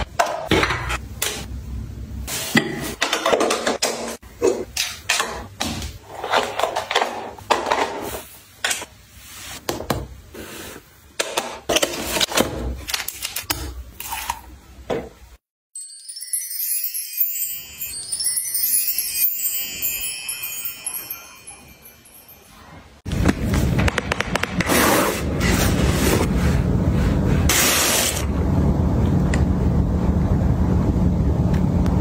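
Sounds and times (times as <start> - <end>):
high glittering chime: 15.8 - 23.0.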